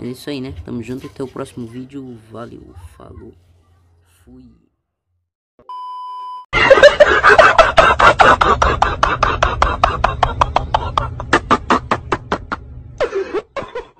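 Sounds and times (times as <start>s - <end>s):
test-tone beep: 5.6s - 6.4s.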